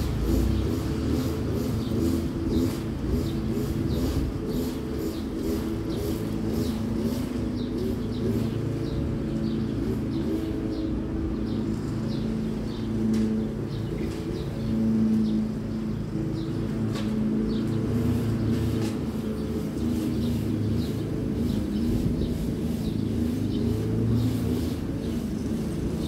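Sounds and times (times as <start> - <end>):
small birds chirping: 0.0 - 26.0
steady low hum: 0.0 - 26.0.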